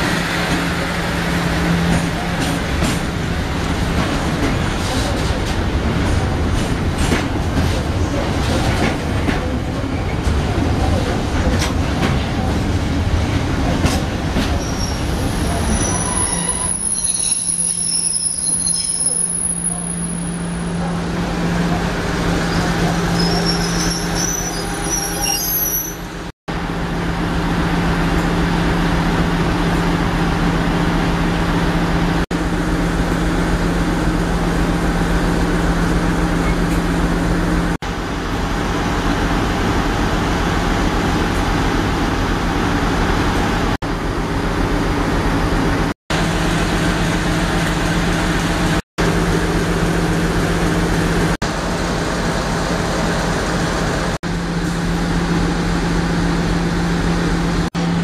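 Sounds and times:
high wheel squeals: 14.6s - 20.4s, 22.5s - 26.2s.

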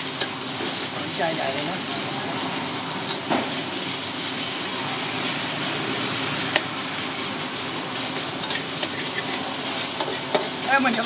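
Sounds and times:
meat sizzling in a wok: 0.0s - 11.0s
spatula scraping a wok: 0.0s - 11.0s.

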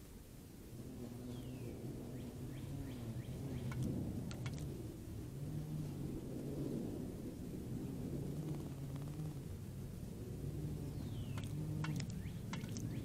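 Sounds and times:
low motor drone: 0.6s - 13.0s
faint bird chirps: 1.1s - 4.7s, 10.4s - 13.0s.

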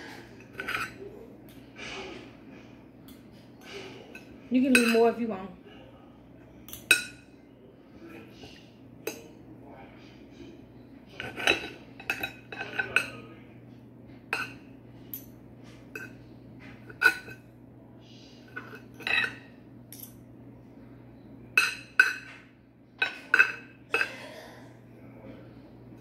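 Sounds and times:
knife and fork clinking on plate: 0.4s - 1.1s, 11.1s - 13.3s, 18.6s - 20.2s, 23.0s - 24.2s.

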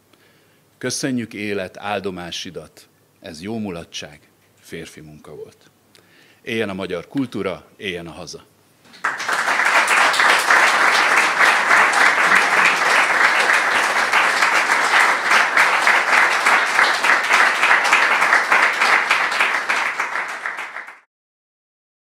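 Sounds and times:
audience applauding: 8.9s - 21.1s.

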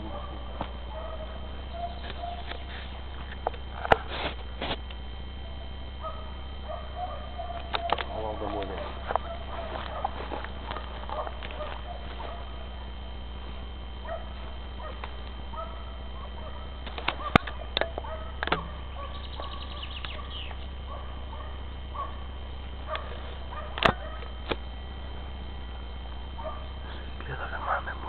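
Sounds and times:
distant hounds baying: 0.0s - 28.0s.

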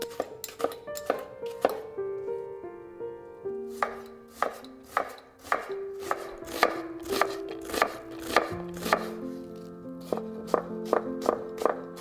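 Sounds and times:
knife chopping on wooden board: 0.1s - 1.8s, 3.8s - 9.2s, 10.0s - 12.0s.

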